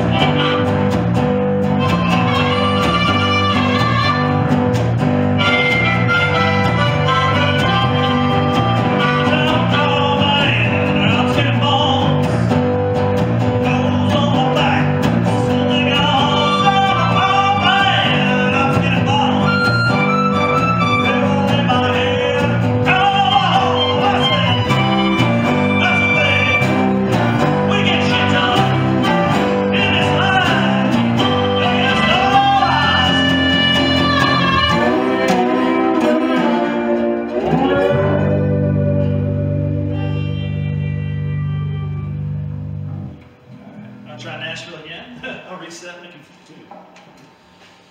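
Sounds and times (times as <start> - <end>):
person singing lead vocal: 0.0 - 0.9, 1.8 - 4.5, 6.6 - 12.6, 13.5 - 42.0
resonator guitar: 0.0 - 44.8
electric bass: 0.0 - 45.2
harmonica wailing: 1.6 - 12.1, 14.0 - 42.9.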